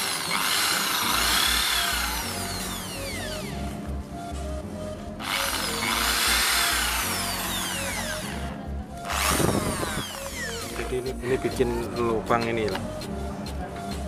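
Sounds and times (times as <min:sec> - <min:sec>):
electric jigsaw cutting wood: 0:00.0 - 0:03.5, 0:05.2 - 0:11.2.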